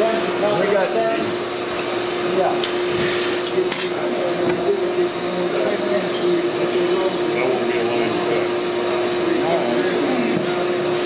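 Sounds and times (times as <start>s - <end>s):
faint voices murmuring: 2.3s - 11.0s.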